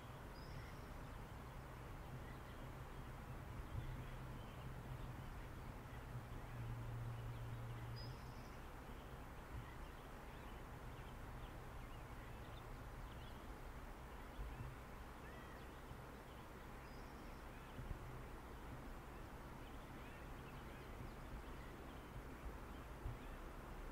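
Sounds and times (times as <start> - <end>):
faint bird chirps: 0.0 - 1.2, 14.1 - 17.9
faint steady hiss: 0.0 - 23.9.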